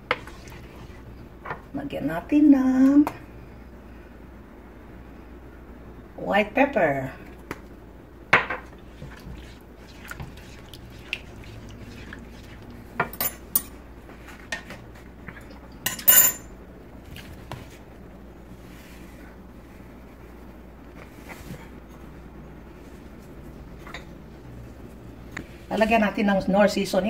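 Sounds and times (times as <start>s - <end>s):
utensils clattering: 15.9s - 16.5s.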